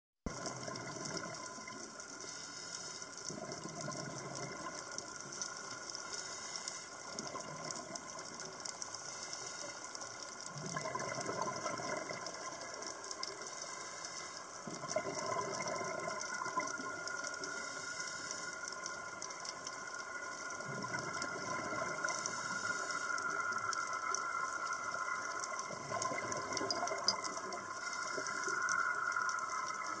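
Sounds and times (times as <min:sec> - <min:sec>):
bubbles gurgling underwater: 0:10.5 - 0:12.8, 0:14.7 - 0:17.1, 0:20.6 - 0:22.1, 0:23.4 - 0:27.8.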